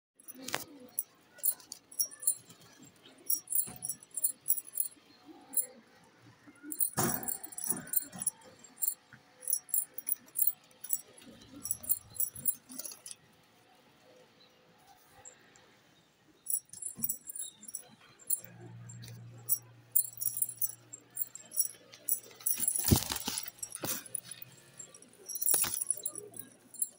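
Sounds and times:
metallic jingling: 0.2 - 5.7, 6.7 - 13.2, 16.5 - 26.9.

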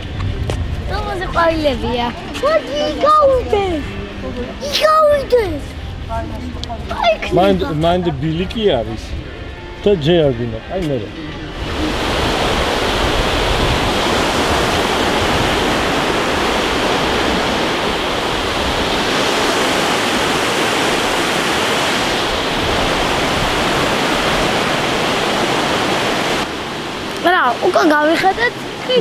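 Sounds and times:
river rushing over rocks: 11.5 - 29.0.

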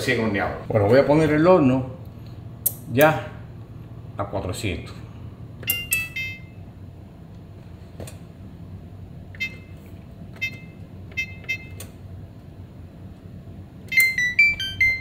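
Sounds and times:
oven control panel beeping: 5.6 - 6.7, 9.2 - 12.3, 13.7 - 15.0.

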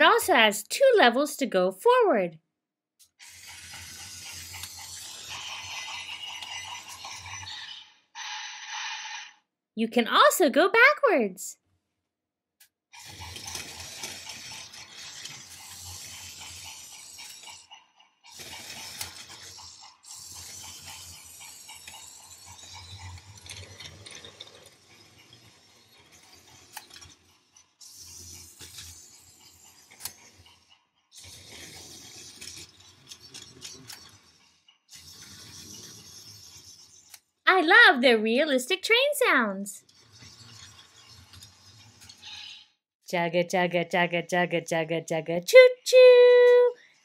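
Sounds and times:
toy train wheels rattling: 3.0 - 9.4, 13.0 - 42.8
toy train motor whirring: 3.0 - 9.5, 12.9 - 42.8, 45.5 - 47.0.

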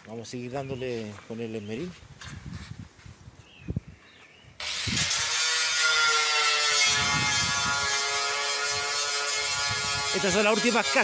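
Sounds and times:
angle grinder grinding: 4.6 - 11.0.

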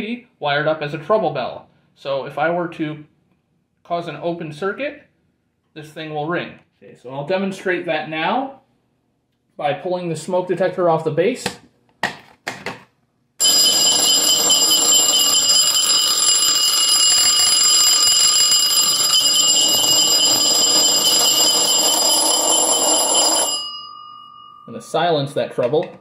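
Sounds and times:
vibrating alarm bell ringing: 13.4 - 26.0.

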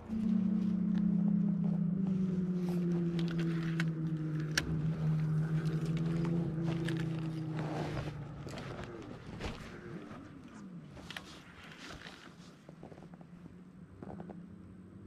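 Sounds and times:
boat motor humming: 0.0 - 11.6.

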